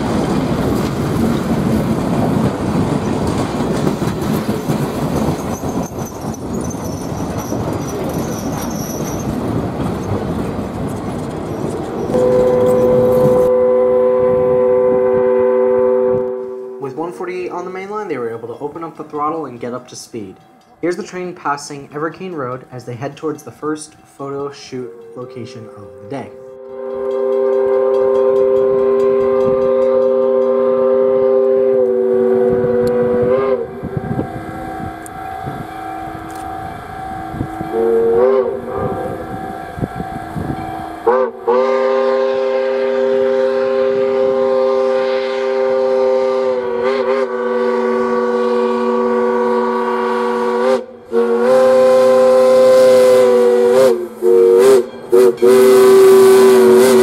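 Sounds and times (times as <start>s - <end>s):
steam whistle chime blasts: 12.1s - 16.9s, 22.7s - 57.0s.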